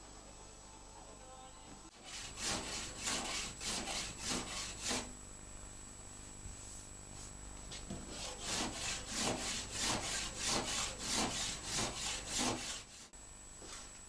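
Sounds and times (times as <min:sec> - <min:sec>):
hand saw cutting wood: 0:01.9 - 0:05.1, 0:08.1 - 0:13.1.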